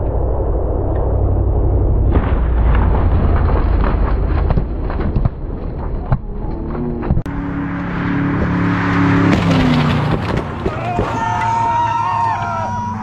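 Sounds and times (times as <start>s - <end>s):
cars speeding past: 6.4s - 13.0s.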